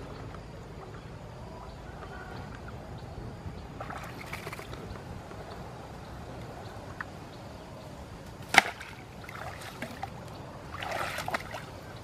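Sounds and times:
fish splashing in shallow water: 0:03.8 - 0:04.8, 0:08.4 - 0:12.0
water smack: 0:08.4 - 0:10.1, 0:10.8 - 0:11.7.

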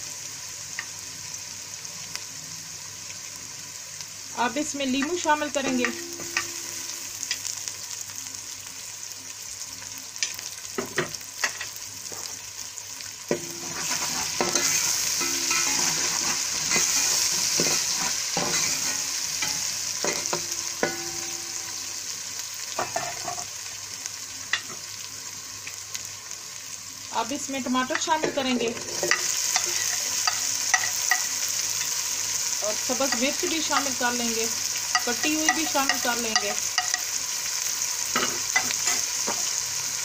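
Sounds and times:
spices sizzling in hot oil: 0:00.0 - 0:40.0
metal spoon clinking on pot: 0:05.1 - 0:06.7, 0:29.0 - 0:31.3, 0:34.9 - 0:37.1.

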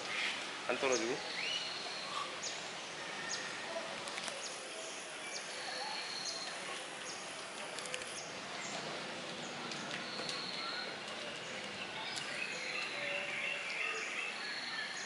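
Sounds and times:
outdoor background hiss: 0:00.0 - 0:15.0
faint clicks: 0:07.5 - 0:08.2
bird chirping: 0:07.9 - 0:15.0.

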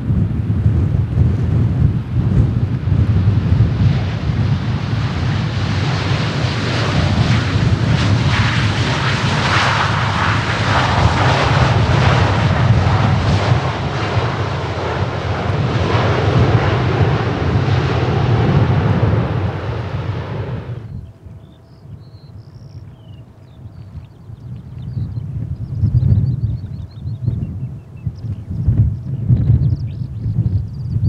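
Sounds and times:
jet engines roaring: 0:00.4 - 0:23.5.

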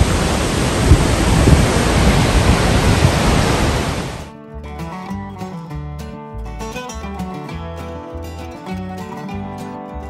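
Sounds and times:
waterfall rushing: 0:00.0 - 0:04.3
acoustic guitar music: 0:04.3 - 0:10.0.

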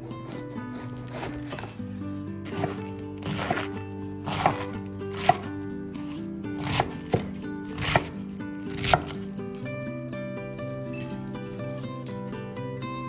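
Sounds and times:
background music with held notes: 0:00.0 - 0:13.0
knife chopping on cutting board: 0:00.2 - 0:01.7, 0:02.5 - 0:09.2.

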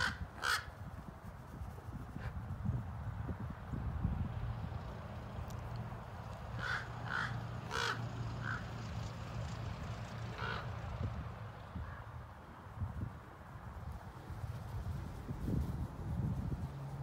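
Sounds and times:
crows cawing: 0:00.0 - 0:00.8, 0:06.6 - 0:08.7, 0:10.3 - 0:10.7.

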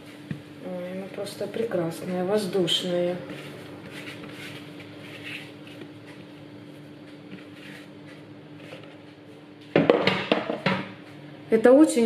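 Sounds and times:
steady low hum: 0:00.0 - 0:12.0
soft rustles of dough and plastic: 0:02.4 - 0:09.7.

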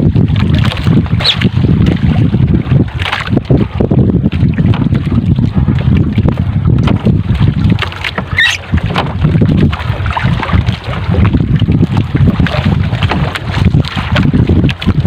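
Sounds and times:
waves lapping against boat: 0:00.0 - 0:15.0
wind buffeting microphone: 0:00.0 - 0:15.0
high squeak: 0:01.2 - 0:01.4, 0:08.3 - 0:08.6.

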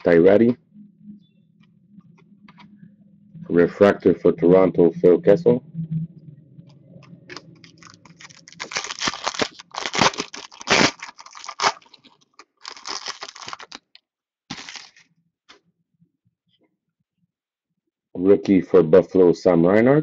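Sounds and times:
foil wrapper tearing and crinkling: 0:07.3 - 0:15.0.

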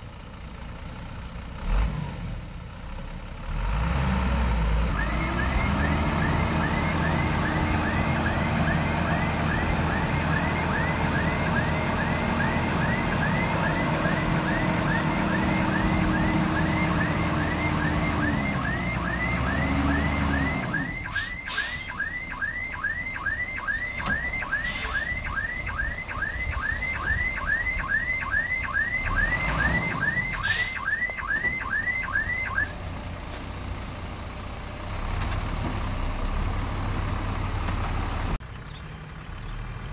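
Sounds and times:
backup alarm chirping: 0:05.0 - 0:32.7.

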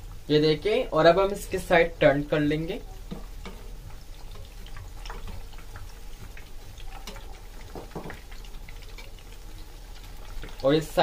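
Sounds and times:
deep-frying sizzle in oil: 0:00.0 - 0:11.0.

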